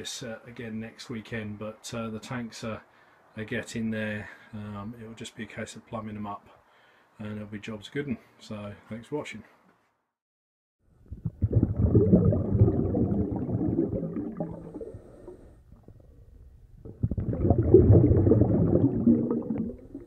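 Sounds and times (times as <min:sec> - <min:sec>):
bubbling gurgling water: 0:11.0 - 0:20.0.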